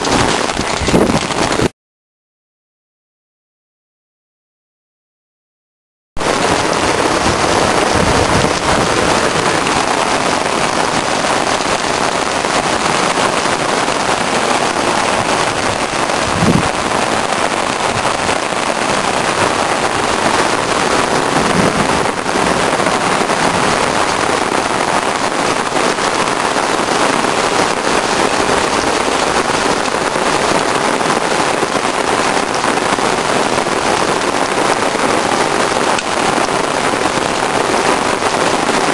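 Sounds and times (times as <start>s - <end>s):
heavy rain pouring: 0.0s - 1.7s, 6.2s - 38.9s.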